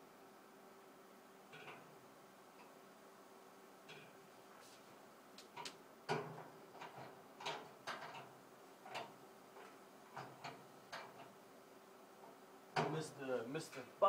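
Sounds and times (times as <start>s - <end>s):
metal door clicks and knocks: 5.6s - 8.3s.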